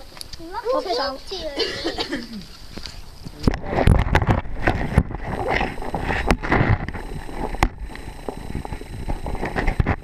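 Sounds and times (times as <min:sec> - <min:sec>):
water sloshing underwater: 0:02.5 - 0:10.0.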